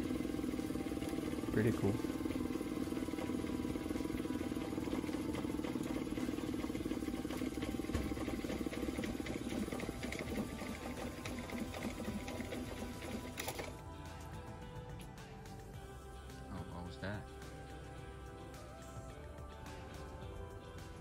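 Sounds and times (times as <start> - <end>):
outboard motor idling: 0.0 - 13.3.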